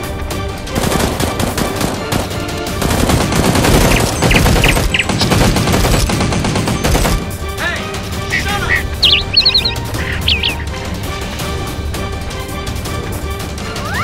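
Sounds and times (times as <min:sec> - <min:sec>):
automatic machine-gun fire: 0:00.8 - 0:07.3.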